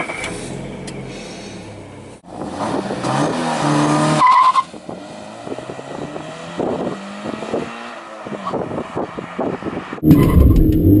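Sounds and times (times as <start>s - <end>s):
car engine revving hard: 2.4s - 4.2s.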